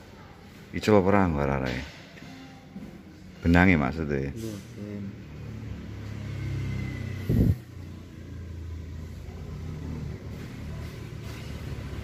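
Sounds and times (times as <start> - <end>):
low engine rumble: 7.2 - 10.5.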